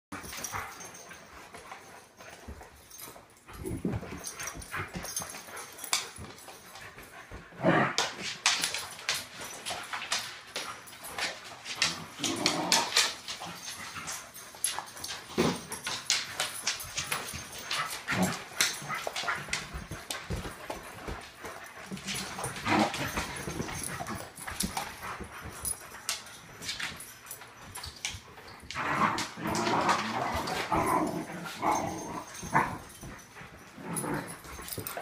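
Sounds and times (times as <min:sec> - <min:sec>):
scuffling clicks and knocks: 0:00.1 - 0:35.0
dogs whimpering and yipping: 0:21.2 - 0:35.0.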